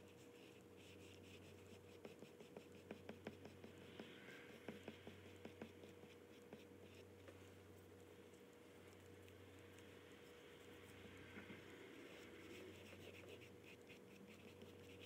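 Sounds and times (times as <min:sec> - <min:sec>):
oil pastel scratching paper: 0:00.0 - 0:07.1, 0:10.2 - 0:15.0
steady low hum: 0:00.0 - 0:15.0.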